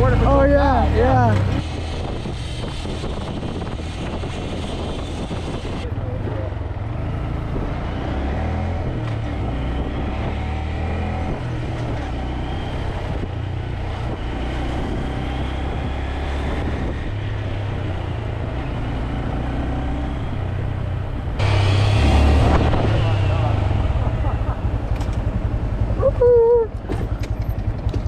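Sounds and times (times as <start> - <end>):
rush of noise: 21.3 - 26.2
small motorcycle engine: 21.4 - 26.1.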